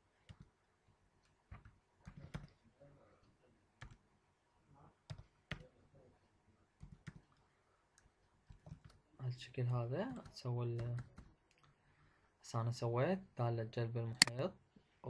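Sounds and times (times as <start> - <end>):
computer keyboard typing: 1.5 - 2.6, 3.8 - 4.0, 6.8 - 7.4, 8.0 - 9.0, 10.2 - 11.8.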